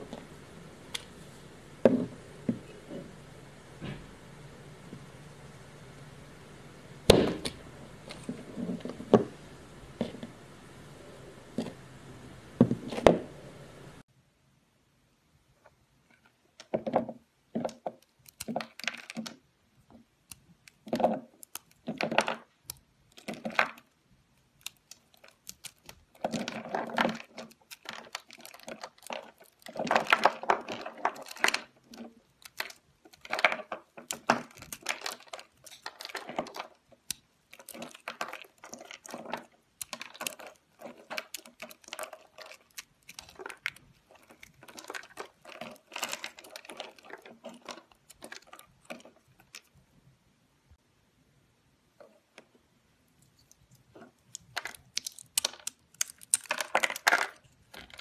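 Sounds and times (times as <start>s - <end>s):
faint hiss: 0.0s - 16.1s
crunchy bar crumbling: 24.6s - 49.6s, 53.9s - 58.0s.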